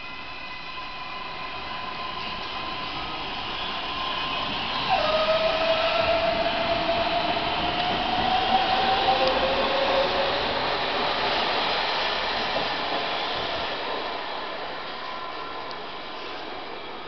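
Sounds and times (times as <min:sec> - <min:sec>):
underground train rumbling: 0:01.3 - 0:17.0.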